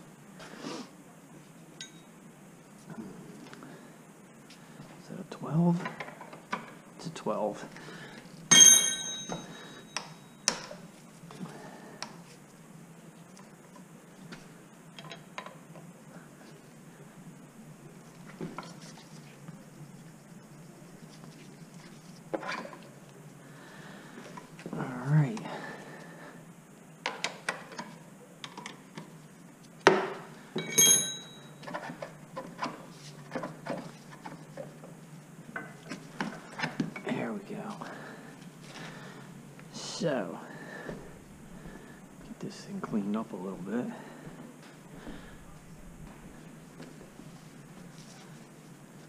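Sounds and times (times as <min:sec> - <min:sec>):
wrench striking with ringing clang: 0:01.8 - 0:02.1, 0:08.5 - 0:10.1, 0:30.6 - 0:31.5.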